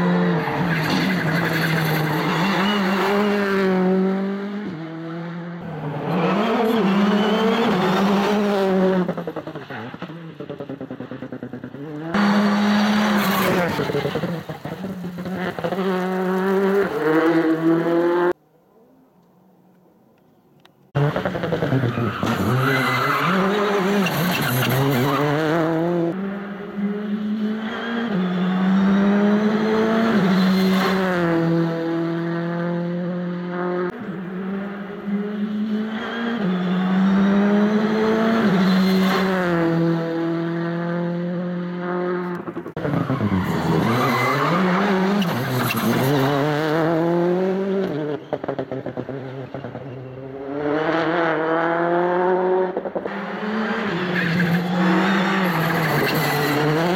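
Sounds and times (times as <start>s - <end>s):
rally car engine revving: 0.0s - 18.4s, 21.0s - 56.9s.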